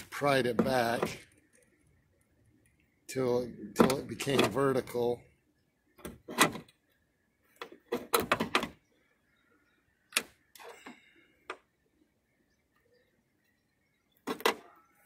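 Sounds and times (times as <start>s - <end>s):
metal latch clicks and knocks: 3.8s - 4.6s.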